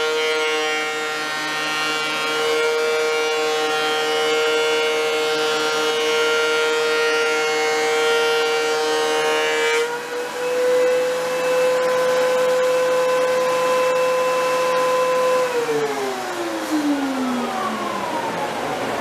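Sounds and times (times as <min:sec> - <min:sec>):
thickness planer whining: 0:00.0 - 0:19.0.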